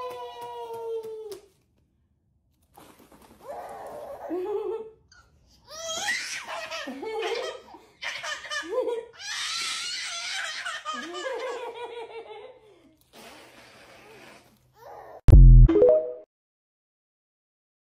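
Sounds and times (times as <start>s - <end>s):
baby laughing: 5.9s - 12.3s.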